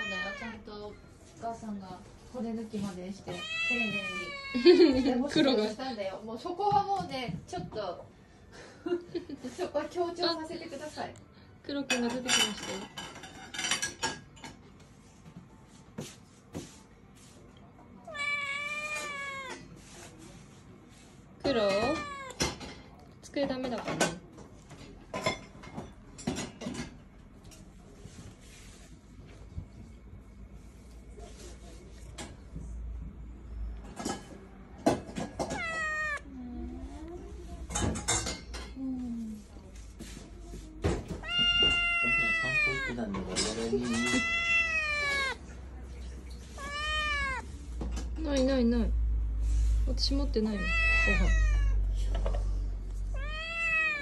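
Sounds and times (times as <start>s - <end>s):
cat meowing: 0.0s - 0.8s, 3.2s - 5.0s, 18.0s - 19.7s, 21.6s - 22.5s, 35.3s - 36.4s, 41.1s - 45.5s, 46.5s - 47.5s, 50.5s - 52.0s, 53.0s - 54.0s.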